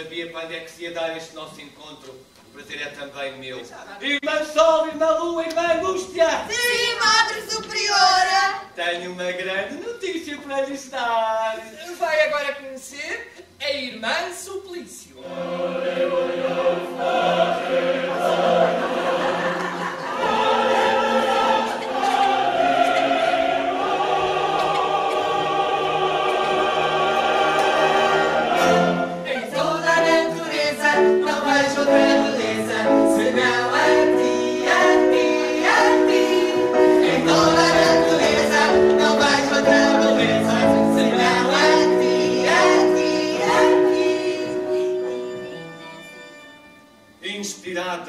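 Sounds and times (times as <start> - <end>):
choir singing: 15.2 - 46.1.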